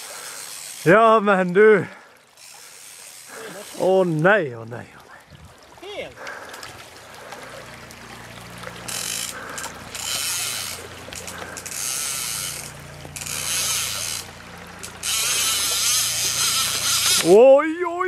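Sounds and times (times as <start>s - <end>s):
fly reel ratchet rasping: 0.0s - 1.3s, 2.3s - 3.9s, 8.7s - 17.5s.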